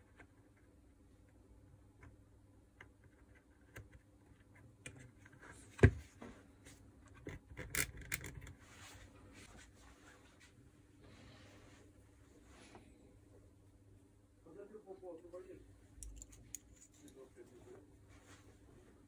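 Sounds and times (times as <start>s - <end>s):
wires and plastic parts rubbing: 7.0s - 9.1s, 16.0s - 17.6s.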